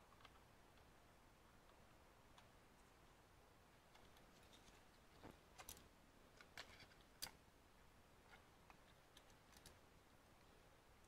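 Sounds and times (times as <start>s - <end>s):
faint clicks and taps: 3.8s - 7.4s, 8.2s - 9.8s.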